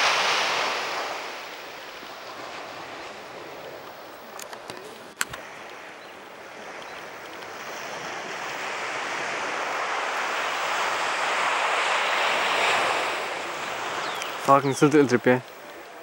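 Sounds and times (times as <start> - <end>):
ocean surf washing in: 0.0 - 16.0
sharp clicks: 6.8 - 7.5.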